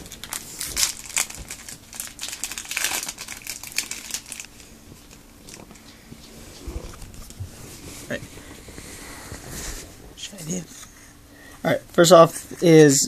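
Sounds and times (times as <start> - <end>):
foil wrapper crinkling: 0.0 - 5.9.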